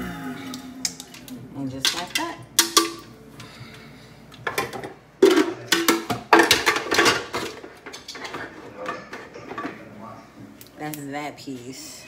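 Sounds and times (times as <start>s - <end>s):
kitchenware clattering: 0.9s - 3.2s, 4.4s - 10.1s.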